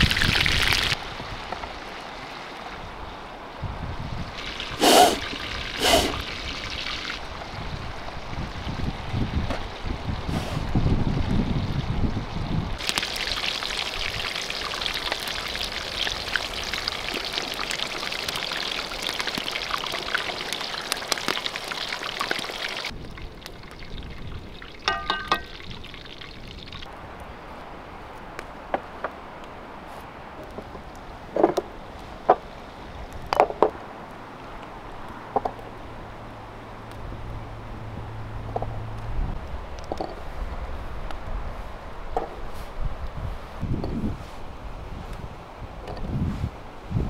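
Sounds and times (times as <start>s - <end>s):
quail sizzling in hot oil: 0.0s - 2.8s, 4.2s - 26.9s.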